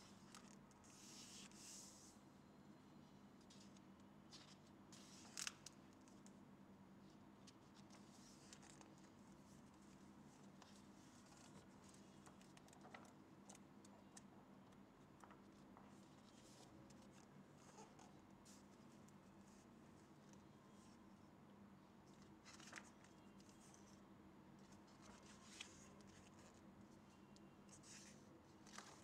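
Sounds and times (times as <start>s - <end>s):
book pages turning: 3.5s - 6.2s, 7.4s - 14.2s, 22.2s - 23.9s, 24.6s - 26.6s, 27.7s - 29.0s.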